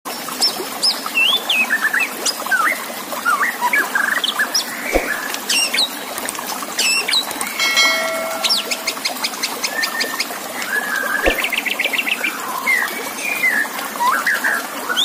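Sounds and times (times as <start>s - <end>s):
trickling water: 0.1s - 15.0s
bird song: 6.8s - 10.1s
held even-pitched note: 7.5s - 9.5s.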